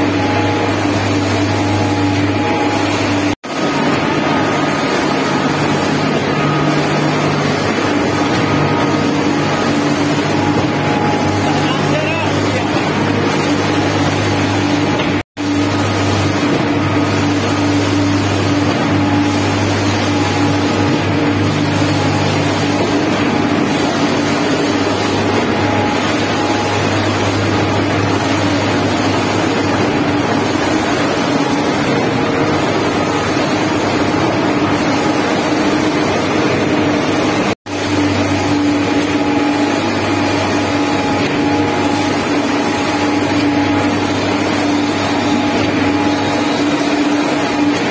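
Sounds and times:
heavy machinery engine drone: 0:00.0 - 0:47.9.

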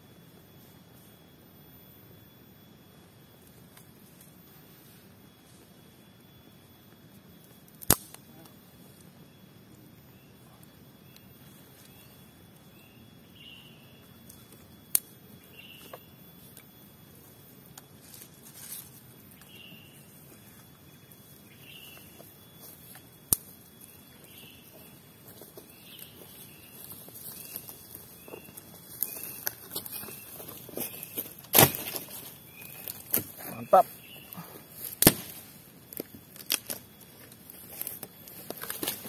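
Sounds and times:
insect drone: 0:00.0 - 0:39.0
sharp snaps: 0:07.8 - 0:08.2
bird chirping: 0:15.3 - 0:16.2, 0:19.3 - 0:22.9, 0:23.7 - 0:31.4, 0:32.4 - 0:34.7.

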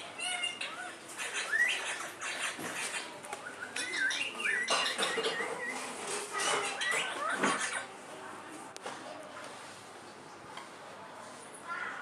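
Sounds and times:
parakeets chattering: 0:00.0 - 0:08.0.

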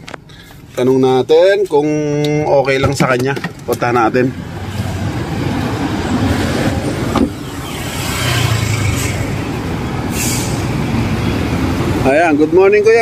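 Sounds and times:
traffic rumble: 0:00.0 - 0:13.0
brief hiss: 0:10.1 - 0:10.6.

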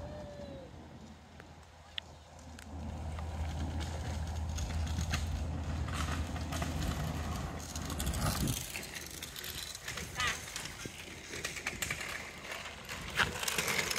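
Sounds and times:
scooter wheels rolling on asphalt: 0:00.0 - 0:13.9.

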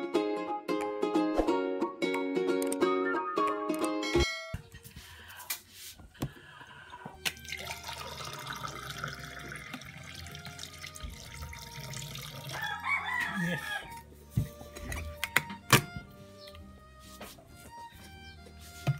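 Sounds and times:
water trickling into a glass: 0:07.0 - 0:12.6
rooster crowing: 0:12.4 - 0:14.0.

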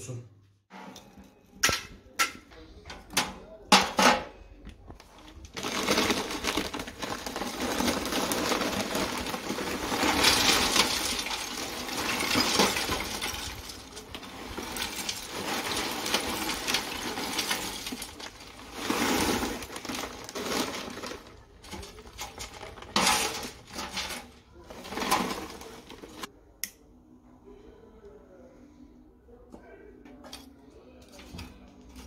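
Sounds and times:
charcoal clinking and clattering: 0:00.8 - 0:26.3.

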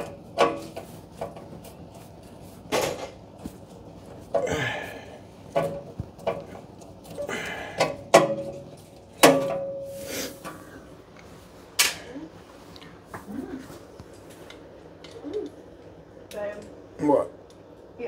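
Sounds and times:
metal clanks and knocks: 0:07.7 - 0:09.8.

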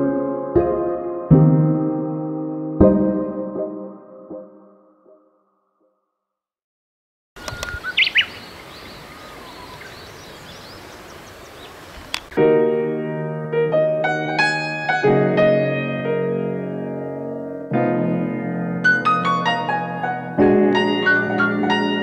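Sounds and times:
slow piano music: 0:00.0 - 0:05.6, 0:12.3 - 0:22.0
bird chirps: 0:07.4 - 0:12.3
outdoor background hiss: 0:07.4 - 0:12.5.

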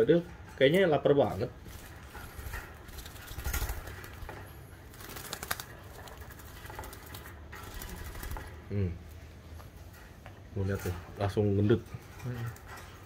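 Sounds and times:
low background hum: 0:00.0 - 0:13.0
bird wings fluttering: 0:01.6 - 0:08.7.

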